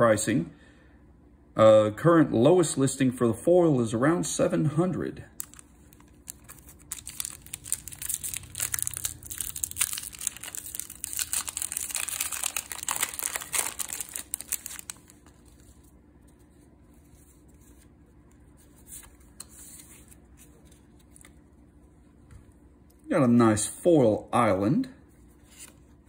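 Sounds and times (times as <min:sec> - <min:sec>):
foil wrapper crinkling and tearing: 0:05.4 - 0:15.6.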